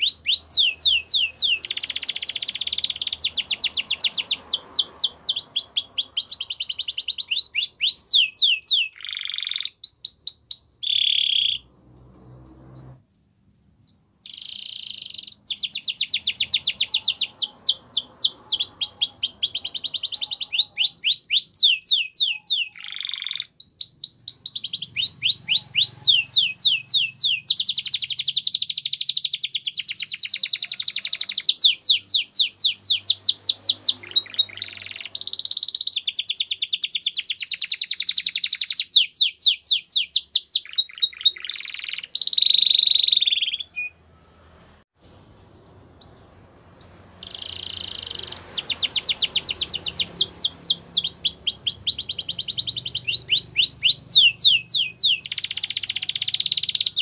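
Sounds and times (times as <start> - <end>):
canary singing trills: 0.0 - 13.0, 13.8 - 44.1, 46.0 - 57.0.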